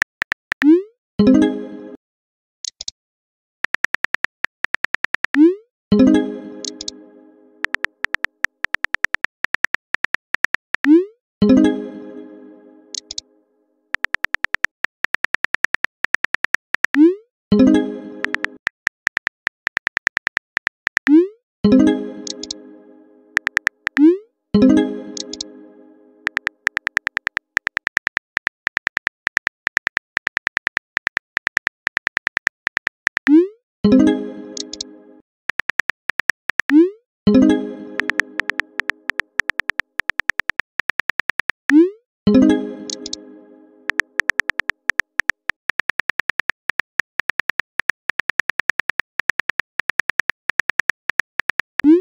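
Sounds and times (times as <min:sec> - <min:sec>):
phone keyboard typing clicks: 0:00.0 - 0:00.7, 0:03.6 - 0:05.4, 0:06.6 - 0:06.9, 0:07.6 - 0:11.0, 0:13.0 - 0:13.2, 0:14.0 - 0:17.1, 0:18.2 - 0:21.2, 0:22.2 - 0:22.6, 0:23.4 - 0:24.1, 0:25.2 - 0:25.4, 0:26.2 - 0:33.4, 0:34.6 - 0:34.8, 0:35.5 - 0:36.8, 0:38.0 - 0:41.8, 0:42.9 - 0:43.2, 0:43.9 - 0:52.0.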